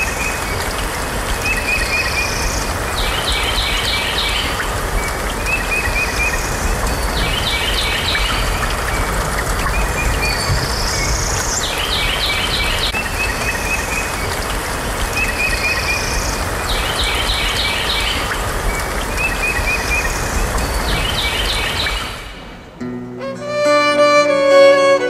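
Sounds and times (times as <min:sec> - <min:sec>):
rain hiss: 0:00.0 - 0:22.8
bird singing: 0:15.2 - 0:22.4.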